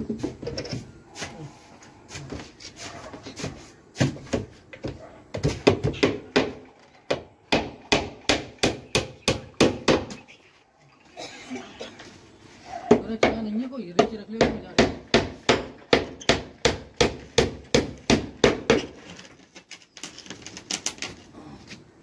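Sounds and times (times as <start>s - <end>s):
hammer driving nails into wood: 14.4s - 19.1s.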